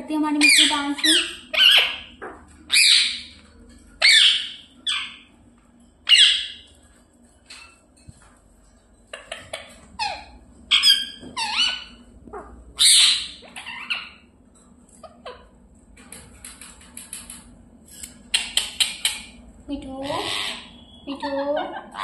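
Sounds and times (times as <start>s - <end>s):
parrot squawking: 0.3s - 3.4s, 4.0s - 5.3s, 6.0s - 6.7s, 9.1s - 14.3s, 15.0s - 15.5s, 20.0s - 22.0s.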